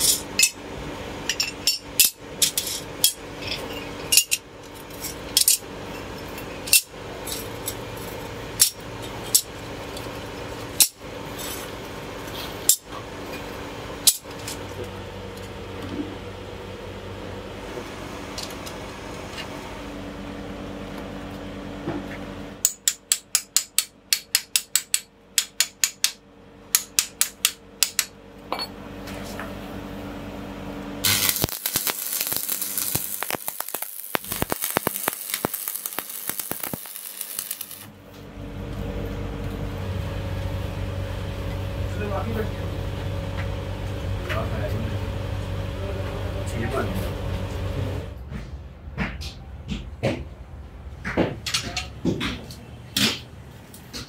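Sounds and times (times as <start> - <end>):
steady hum: 0.0 - 54.0
arc welding crackling: 31.0 - 37.9.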